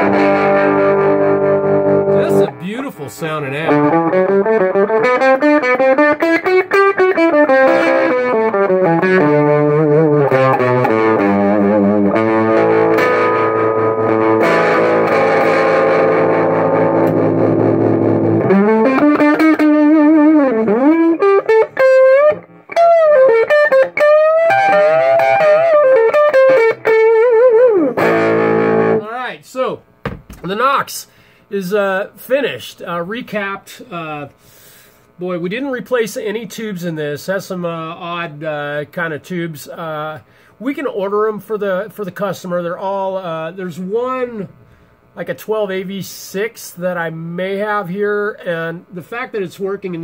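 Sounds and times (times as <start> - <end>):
electric guitar chords: 0.0 - 29.1
electric guitar lead lines: 0.0 - 29.2.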